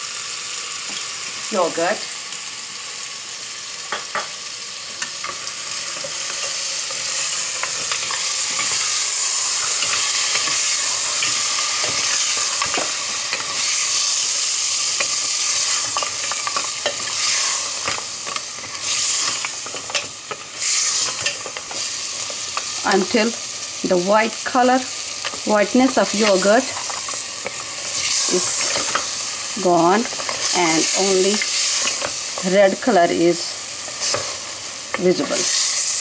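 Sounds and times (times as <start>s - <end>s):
meat sizzling in oil: 0.0s - 36.0s.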